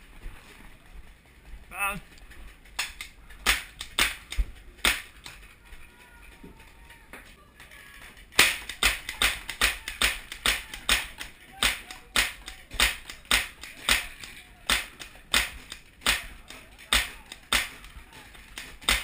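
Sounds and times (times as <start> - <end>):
paintball marker shots: 2.8 - 5.3, 8.3 - 19.0.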